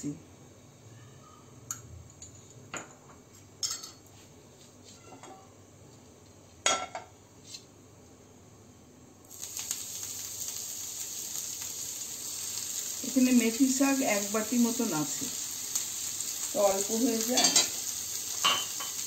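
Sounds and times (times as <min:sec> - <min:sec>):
leaves sizzling in hot fat: 0:09.3 - 0:19.0
spoon clinking on a frying pan: 0:17.4 - 0:17.8, 0:18.4 - 0:19.0.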